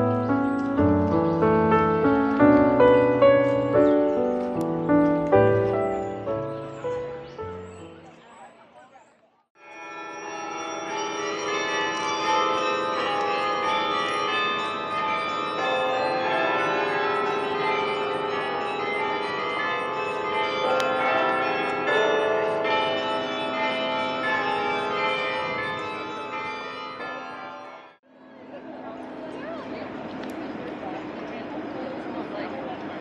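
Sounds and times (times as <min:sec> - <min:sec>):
carillon bells ringing: 0:09.6 - 0:28.0.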